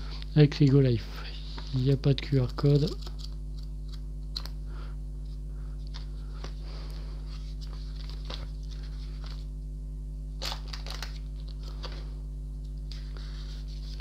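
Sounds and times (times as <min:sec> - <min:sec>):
steady low hum: 0:00.0 - 0:14.0
paper pages rustling: 0:07.3 - 0:09.5, 0:10.4 - 0:12.1, 0:12.9 - 0:14.0.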